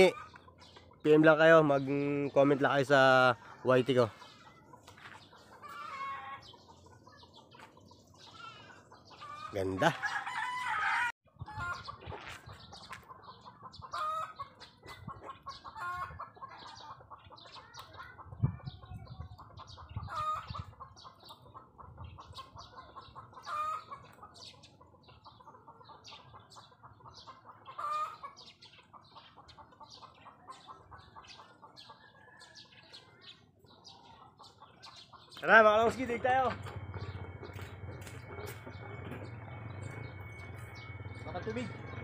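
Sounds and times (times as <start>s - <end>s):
chickens clucking: 0.0s - 42.0s.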